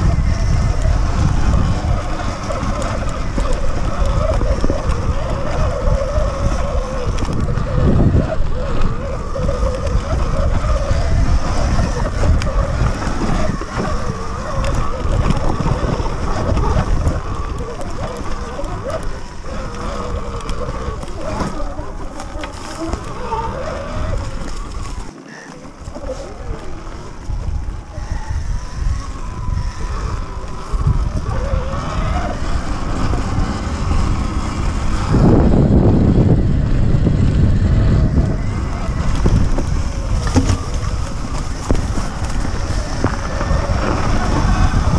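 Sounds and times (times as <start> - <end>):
electric motor whine: 0.0 - 44.9
tyres rolling over dirt: 0.0 - 44.9
wind rumbling on microphone: 0.0 - 44.9.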